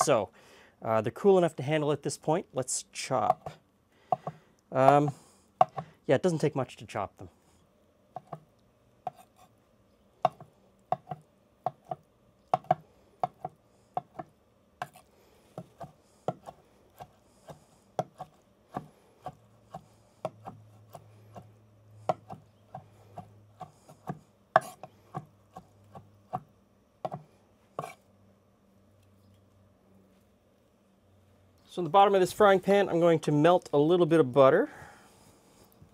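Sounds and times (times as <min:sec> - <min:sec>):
knife chopping on wooden board: 0:03.3 - 0:05.9, 0:08.2 - 0:08.4, 0:09.0 - 0:09.3, 0:10.2 - 0:15.0, 0:15.6 - 0:28.0.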